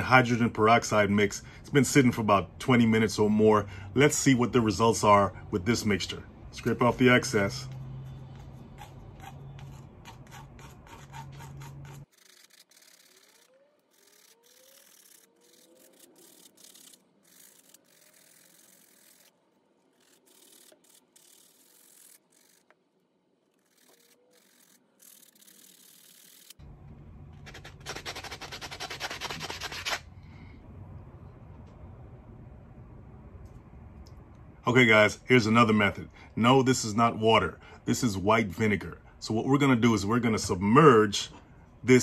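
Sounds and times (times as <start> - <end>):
sandpaper scrubbing metal: 7.3 - 22.6, 23.6 - 26.6, 27.4 - 30.1
plastic spoon scraping blade: 7.6 - 19.3, 27.4 - 30.0.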